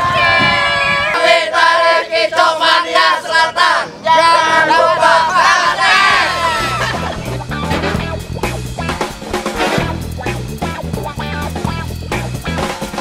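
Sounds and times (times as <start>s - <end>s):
choir singing: 0.0s - 7.1s.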